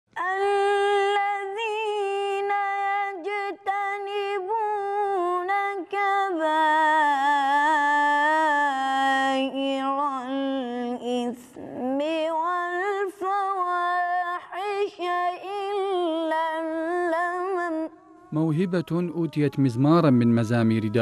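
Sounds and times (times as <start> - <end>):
boy chanting melodically: 17.7 - 21.0.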